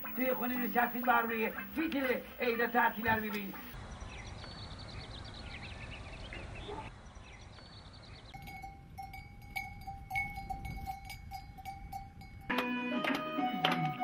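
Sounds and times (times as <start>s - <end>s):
birds chirping: 0.0s - 8.7s
cowbell clanking: 8.4s - 12.6s.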